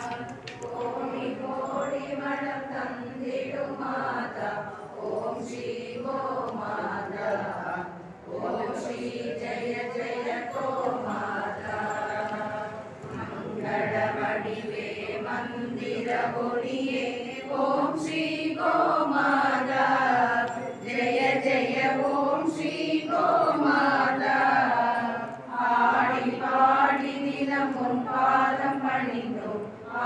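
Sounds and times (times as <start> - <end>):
women chanting a hymn: 0.0 - 30.0.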